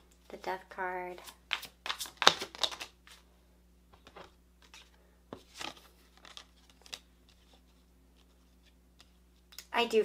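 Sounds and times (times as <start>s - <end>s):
cards flicking and sliding: 1.5s - 3.2s.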